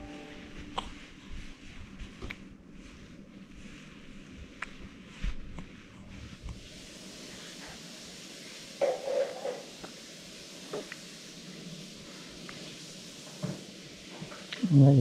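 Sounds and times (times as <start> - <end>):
rain hissing: 6.4 - 15.0.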